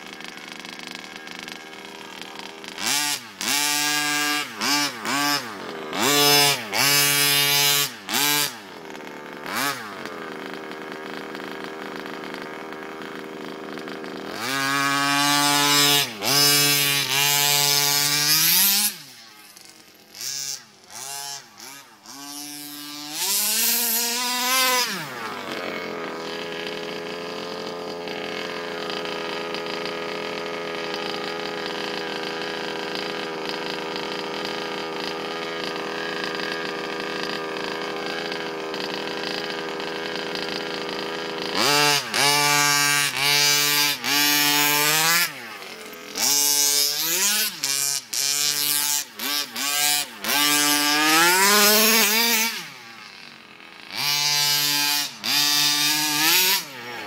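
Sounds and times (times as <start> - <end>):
two-stroke engine idling and revving: 0.0 - 57.0.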